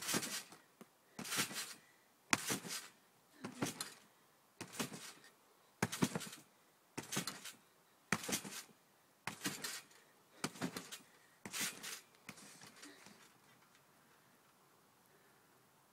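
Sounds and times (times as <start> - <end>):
skis landing on trampoline: 0.0 - 0.6, 1.2 - 4.0, 4.6 - 5.2, 5.8 - 8.7, 9.3 - 13.3.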